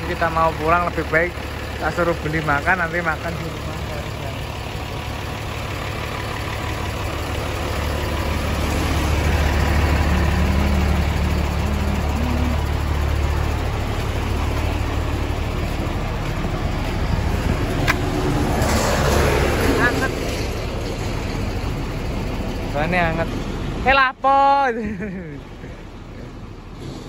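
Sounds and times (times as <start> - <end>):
truck engine idling: 0.0 - 27.0.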